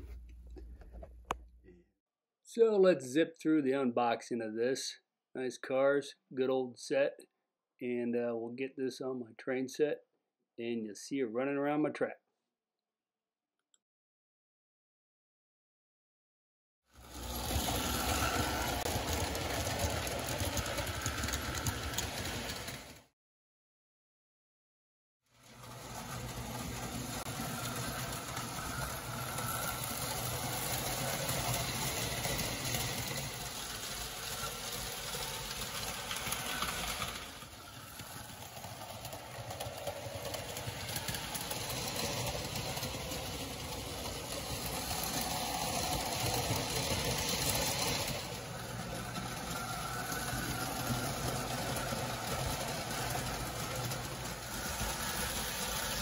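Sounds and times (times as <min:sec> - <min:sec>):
toy train motor hum: 0:17.0 - 0:23.0, 0:25.3 - 0:56.0
wheels on rails: 0:17.0 - 0:23.0, 0:25.3 - 0:56.0.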